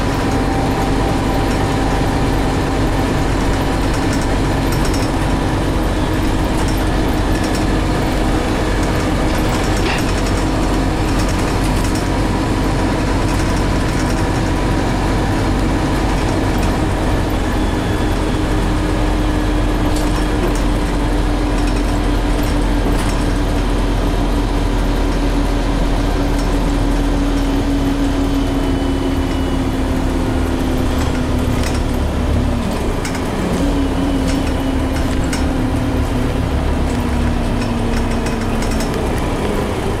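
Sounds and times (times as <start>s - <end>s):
whine dropping in pitch: 0.0s - 11.1s
bus engine drone: 0.0s - 40.0s
road noise: 0.0s - 40.0s.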